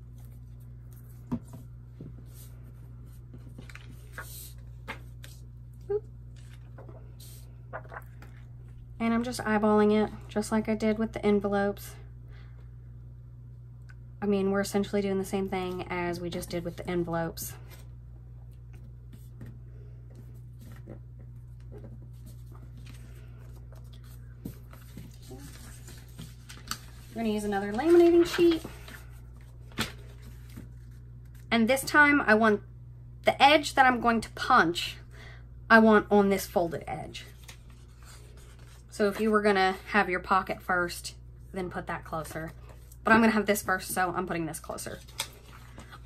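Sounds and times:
steady low hum: 0.0s - 46.0s
paper rustling: 3.1s - 5.5s, 21.6s - 31.5s.

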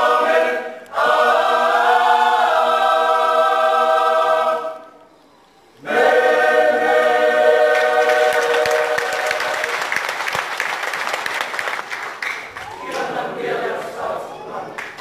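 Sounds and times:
choir singing a chord: 0.0s - 5.0s, 5.8s - 9.7s
audience applauding: 7.7s - 13.3s, 14.7s - 15.0s.

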